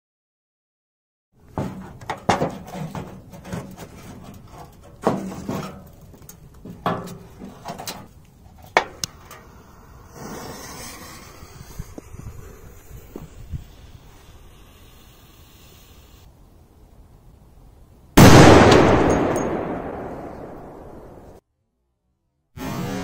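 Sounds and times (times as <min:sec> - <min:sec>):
sheet metal knocks and scrapes: 0:01.5 - 0:06.0, 0:06.6 - 0:08.1
fuse hissing: 0:09.0 - 0:16.3.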